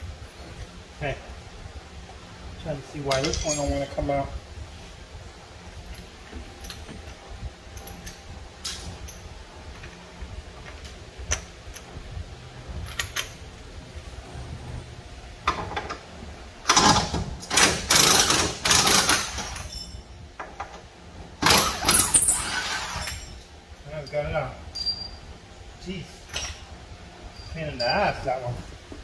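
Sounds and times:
tools clicking on metal: 0:03.1 - 0:03.9
impact wrench bursts: 0:16.7 - 0:19.8, 0:21.4 - 0:23.3.

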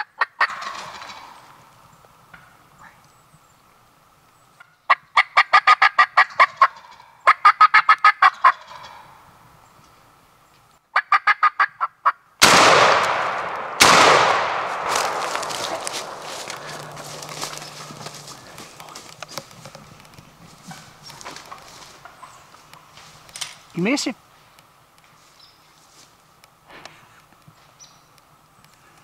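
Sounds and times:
turkey gobbling: 0:00.0 - 0:01.6, 0:04.6 - 0:09.2, 0:10.9 - 0:12.2, 0:14.9 - 0:18.8, 0:20.5 - 0:23.0
shotgun blasts echoing: 0:12.4 - 0:17.2.

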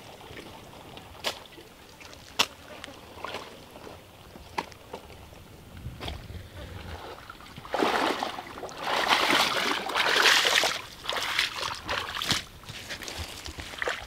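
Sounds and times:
water splashing and sloshing: 0:00.0 - 0:14.0
basket rustling in water: 0:06.0 - 0:14.0.

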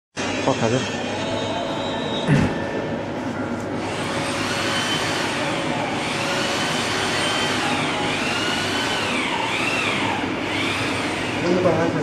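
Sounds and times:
mechanical whirring: 0:03.6 - 0:12.0.

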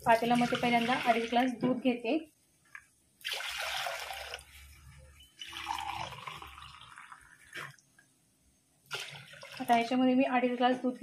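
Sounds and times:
milk pouring into steel pot: 0:03.2 - 0:04.6, 0:05.4 - 0:07.9, 0:08.9 - 0:10.0.

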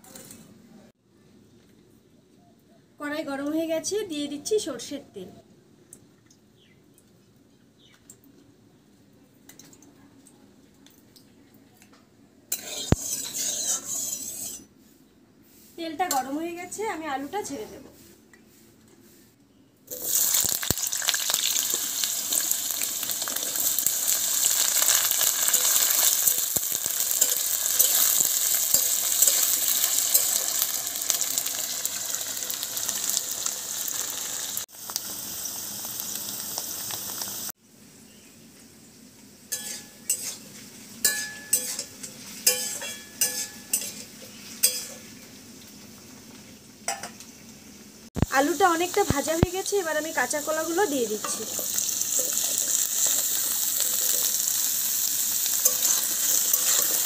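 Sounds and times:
potatoes sizzling in hot oil: 0:12.6 - 0:14.6, 0:19.9 - 0:37.5, 0:39.2 - 0:57.0
metal clinks of stirring: 0:55.6 - 0:57.0.

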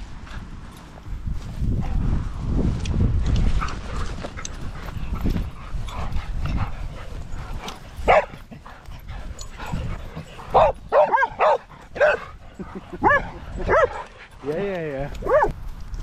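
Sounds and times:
dog barking: 0:08.0 - 0:08.3, 0:10.5 - 0:12.2, 0:13.0 - 0:14.0, 0:15.2 - 0:15.5.

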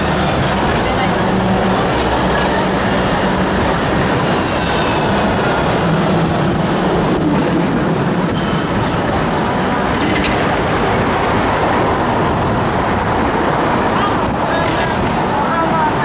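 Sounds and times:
road traffic: 0:00.0 - 0:16.0
tram wheels on rails: 0:00.0 - 0:16.0.

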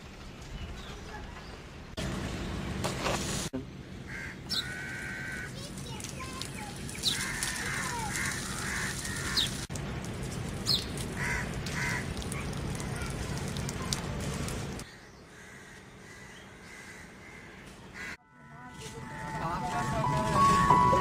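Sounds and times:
crows cawing: 0:04.1 - 0:05.6, 0:07.0 - 0:09.6, 0:11.1 - 0:12.3, 0:14.9 - 0:18.2.

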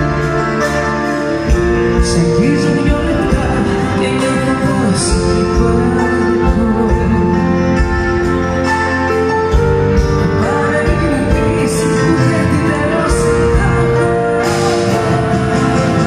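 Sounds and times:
drums: 0:00.0 - 0:16.0
keyboard: 0:00.0 - 0:16.0
woman singing: 0:02.0 - 0:08.0, 0:10.2 - 0:16.0.

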